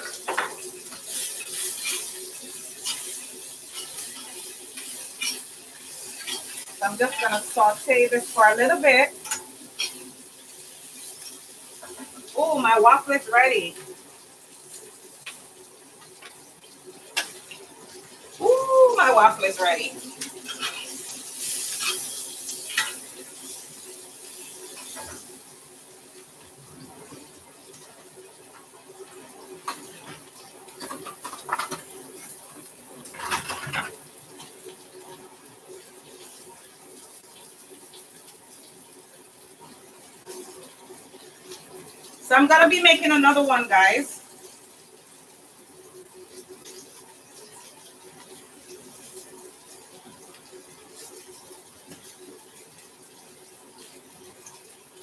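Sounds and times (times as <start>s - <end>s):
range hood fan hum: 0.0s - 46.4s
vegetables sizzling in a skillet: 0.0s - 55.0s
range hood fan running: 16.9s - 21.8s.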